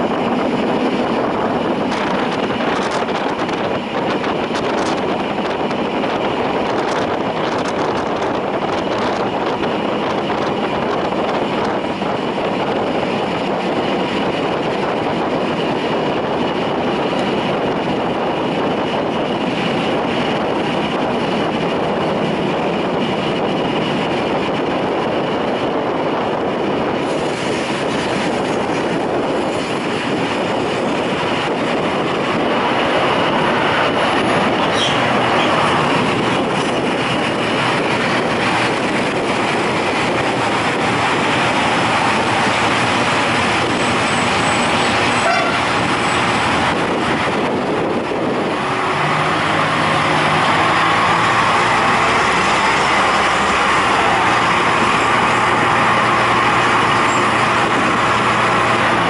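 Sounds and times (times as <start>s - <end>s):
railcar rumbling on track: 0.0s - 59.0s
wheel squeak: 34.6s - 35.6s.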